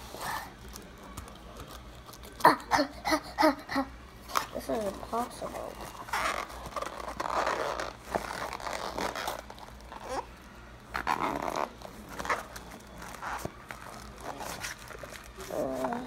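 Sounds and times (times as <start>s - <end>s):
cardboard packaging rustling and tearing: 4.3s - 10.3s, 10.9s - 16.0s.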